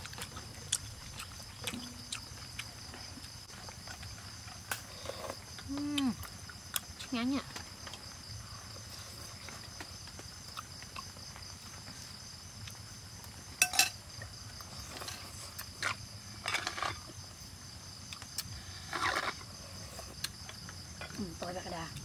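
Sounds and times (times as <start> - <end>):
insect chorus: 0.0 - 22.0
metal spoons clinking on bowls: 13.6 - 14.0.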